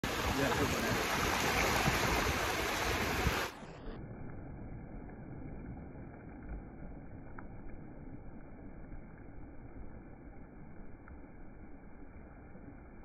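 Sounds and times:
small waves washing up beach: 0.0 - 4.8.

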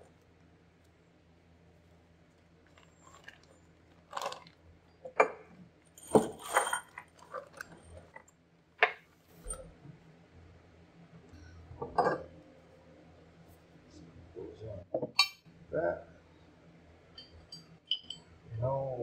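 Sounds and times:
plastic bags rustling: 2.4 - 4.8, 5.9 - 8.2
metal bolts and nuts clinking: 6.0 - 8.2.

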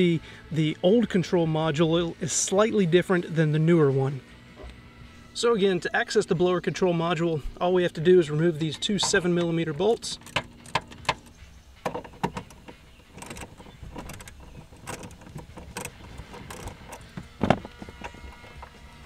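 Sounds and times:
tool and bolt rattling: 8.9 - 18.7
ratchet wrench clicking: 10.2 - 17.1.

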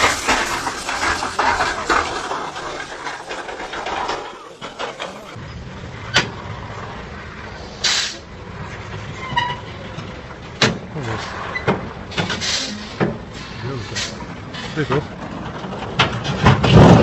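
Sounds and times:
diesel truck engine running: 0.0 - 17.0
air brake hiss: 7.7 - 8.3, 12.3 - 14.2.

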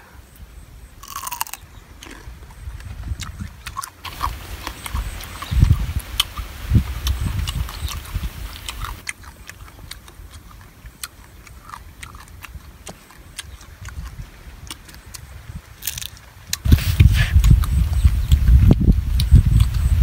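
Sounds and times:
chewing and crunching: 1.0 - 20.0
crab shell cracking: 15.8 - 16.2.

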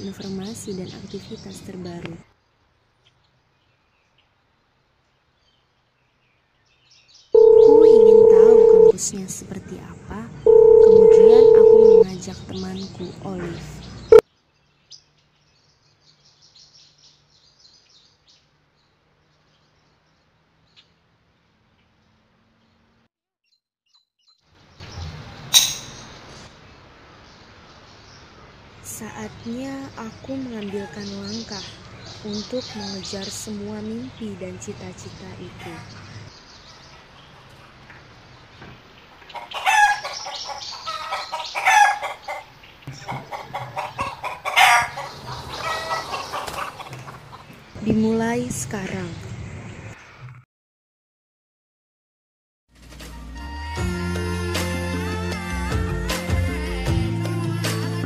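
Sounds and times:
chickens clucking: 39.1 - 47.7.

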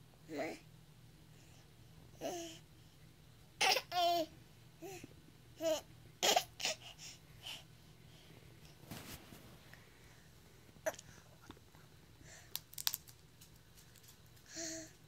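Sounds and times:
baby laughing: 3.6 - 4.3, 5.6 - 6.8.

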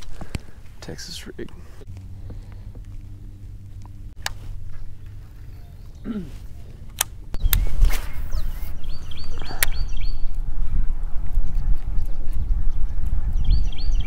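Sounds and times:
bird chirping: 4.7 - 14.0.

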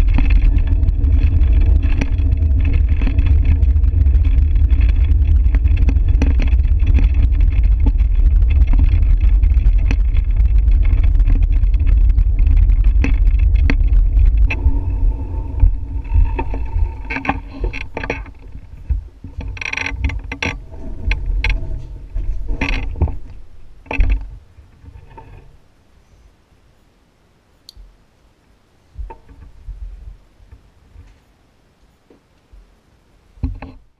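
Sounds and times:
bicycle rattles and clicks: 0.0 - 25.2
wind buffeting microphone: 0.0 - 25.2.

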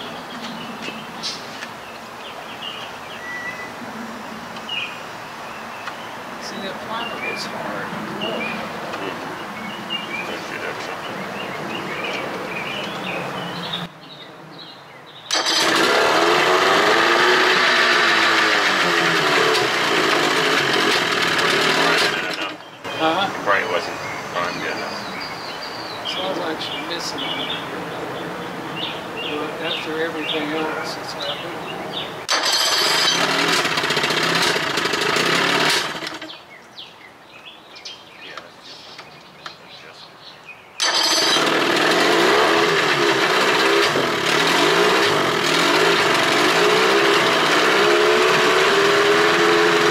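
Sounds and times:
outboard motor running: 15.3 - 23.2, 32.3 - 36.4, 40.8 - 49.9.

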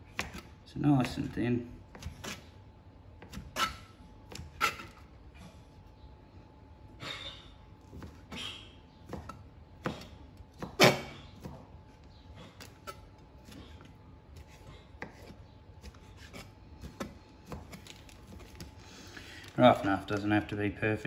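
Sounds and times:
knife chopping on plastic board: 0.0 - 1.2, 9.0 - 11.7, 14.4 - 18.6.

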